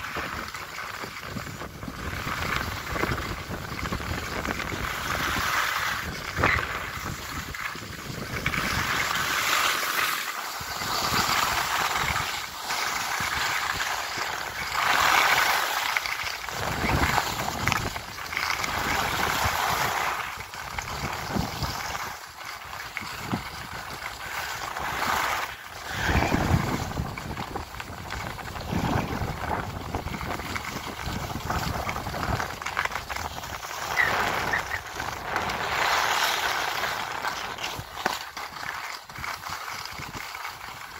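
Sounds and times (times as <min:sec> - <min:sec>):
wind rumbling on microphone: 0:00.0 - 0:09.7, 0:10.5 - 0:40.9
ski edges scraping on snow: 0:00.0 - 0:40.9.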